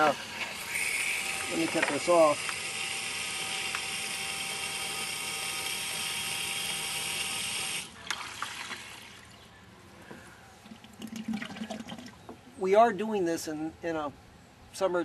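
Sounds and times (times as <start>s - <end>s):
pump rushing water and air: 0.0s - 9.2s.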